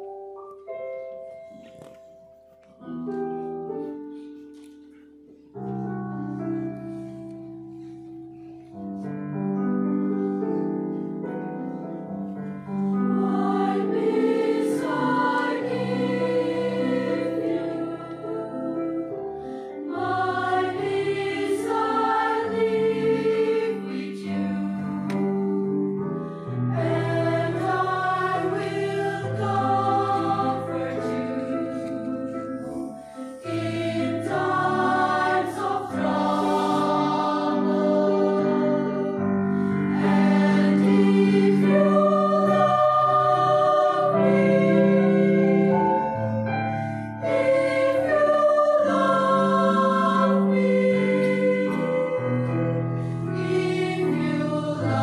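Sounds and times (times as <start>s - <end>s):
mixed choir singing: 12.3s - 55.0s.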